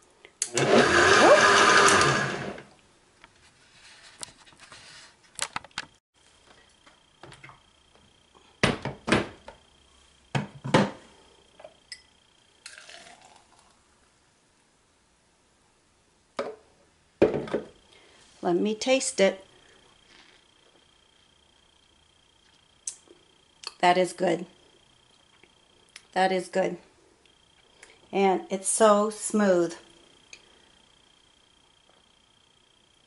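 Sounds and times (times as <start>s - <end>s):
blender running: 0.4s - 2.7s.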